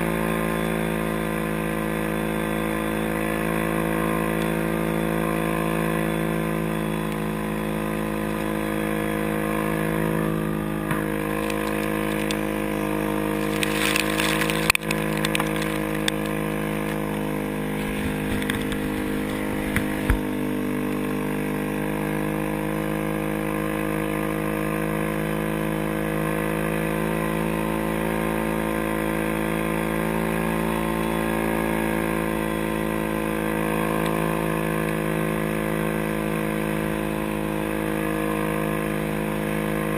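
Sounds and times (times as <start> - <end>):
atv engine running: 0.0 - 39.9
small clicks: 11.4 - 12.5, 13.5 - 17.0.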